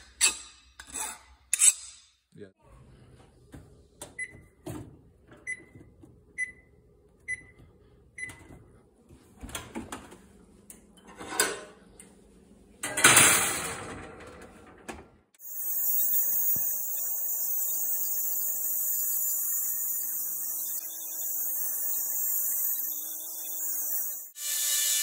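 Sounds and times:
oven keypad beeps: 4.2 - 4.6, 5.4 - 8.6.

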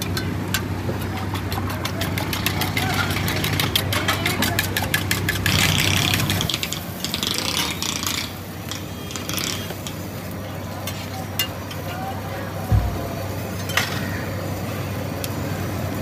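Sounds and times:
egg beaten in metal pot: 0.0 - 7.0
frying hiss: 0.0 - 16.0.

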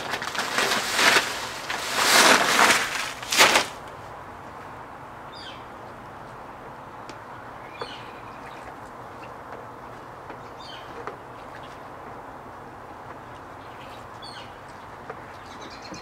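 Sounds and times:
sack rustling and crinkling: 0.0 - 3.9
bird chirping: 7.3 - 8.7, 13.6 - 16.0.

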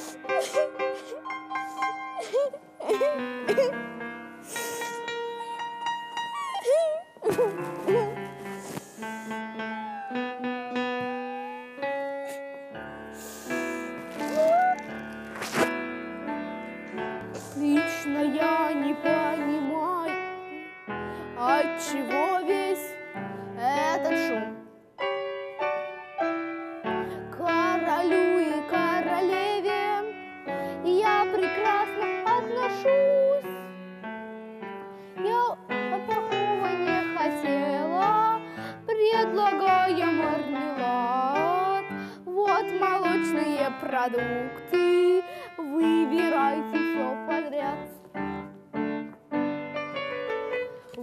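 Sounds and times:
piano playing: 0.0 - 51.0
person singing: 6.4 - 12.5, 17.4 - 20.2
girl singing: 14.1 - 14.9, 17.4 - 20.7, 21.3 - 24.7, 27.0 - 33.7, 35.2 - 48.0.

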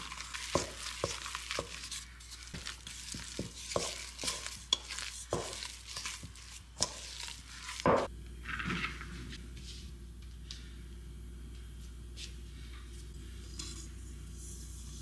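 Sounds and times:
hands brushing flour on board: 0.0 - 8.0
spatula scraping a metal bowl: 0.0 - 8.1.

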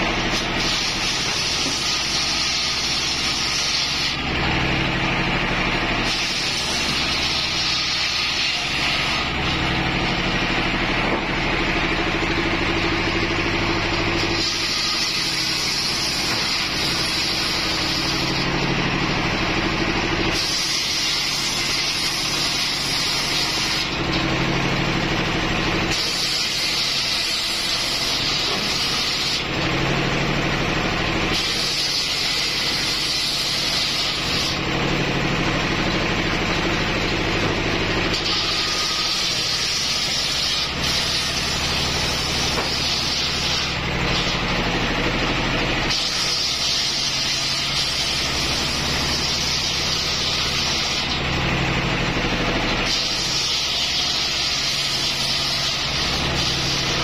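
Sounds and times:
saw blade cutting hiss: 0.0 - 4.2, 6.0 - 9.6, 14.1 - 18.5, 20.3 - 24.0, 25.8 - 29.5, 31.3 - 34.6, 38.1 - 44.4, 45.9 - 51.2, 52.8 - 57.0
diesel engine running: 0.0 - 57.0.

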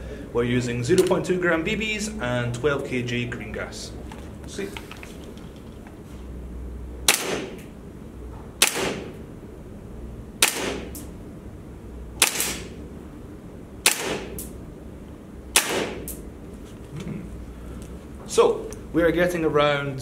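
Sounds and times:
airsoft rifle shots: 7.1 - 7.7, 8.6 - 9.2, 10.4 - 11.0, 12.2 - 12.8, 13.8 - 14.5, 15.5 - 16.2.

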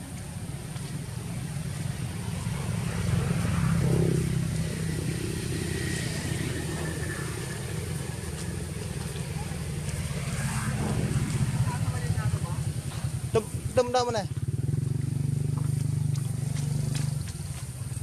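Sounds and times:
vehicle engine passing by: 0.0 - 18.0.

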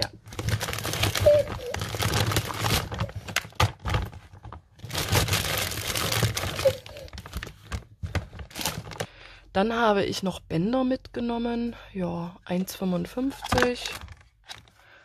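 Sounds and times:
rustling and crinkling handling: 0.0 - 9.2.

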